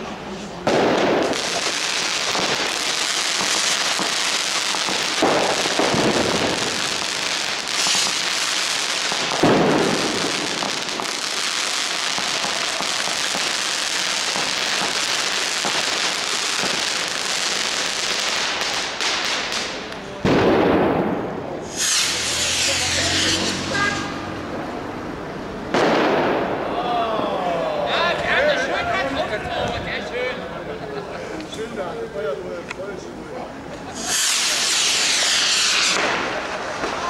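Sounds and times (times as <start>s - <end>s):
firecrackers crackling: 0.0s - 24.7s, 25.6s - 26.8s, 33.8s - 37.0s
heavy firework bangs: 0.6s - 23.9s, 25.7s - 26.6s, 34.0s - 37.0s.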